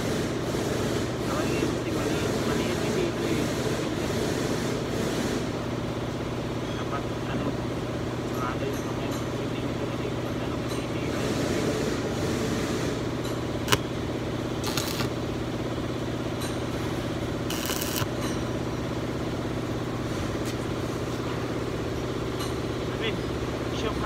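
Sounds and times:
machinery humming: 0:09.6 - 0:16.0, 0:16.7 - 0:20.0
sharp click: 0:14.6 - 0:15.1.

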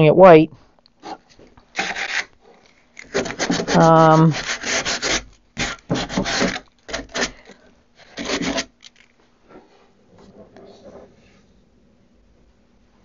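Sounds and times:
sanding sponge rasping on wood: 0:03.2 - 0:07.3.

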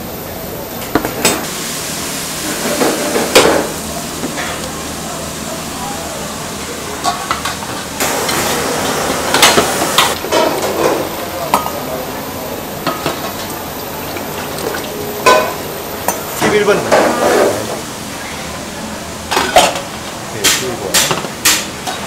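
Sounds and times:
steady hiss: 0:00.0 - 0:07.0, 0:07.8 - 0:19.0
metal bowls and ladle clinking: 0:12.8 - 0:17.7.

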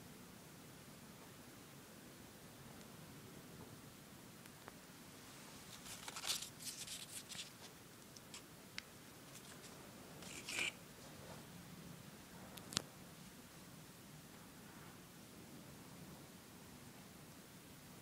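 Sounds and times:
paper and cardboard crinkling: 0:05.6 - 0:07.7, 0:09.3 - 0:10.8.

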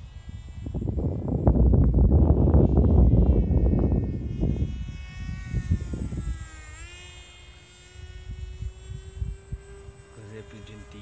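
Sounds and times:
model plane motor buzzing: 0:00.0 - 0:11.0.

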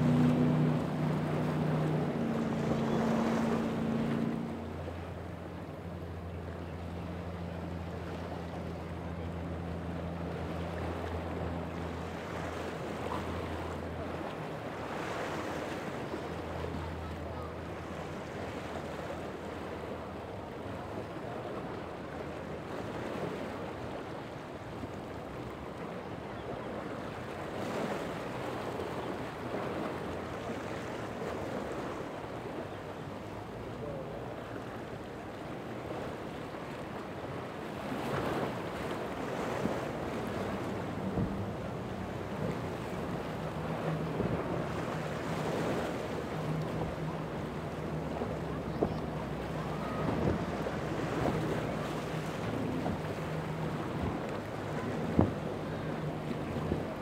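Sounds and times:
boat engine humming: 0:00.0 - 0:57.0
surf washing: 0:00.0 - 0:57.0
wind buffeting microphone: 0:39.5 - 0:57.0.

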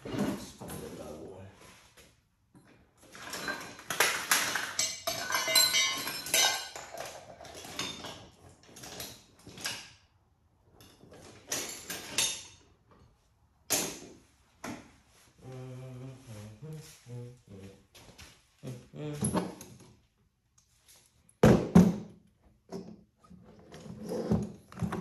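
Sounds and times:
small hard parts clinking and rattling: 0:02.5 - 0:10.0, 0:10.8 - 0:12.7.

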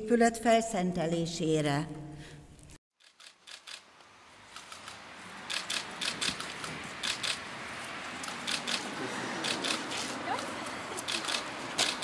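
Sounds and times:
crowd hubbub: 0:08.4 - 0:12.0.

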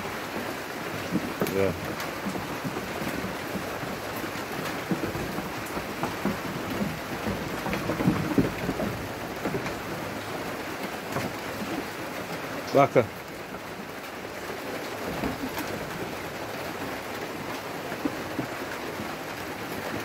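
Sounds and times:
rain-like hiss: 0:00.0 - 0:20.0
low knocks and rumbles: 0:01.0 - 0:10.3.

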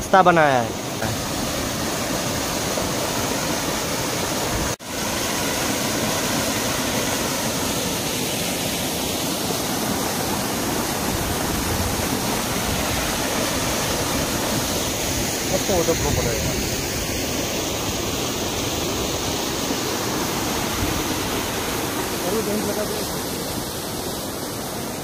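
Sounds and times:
stream water rushing: 0:00.0 - 0:25.0.

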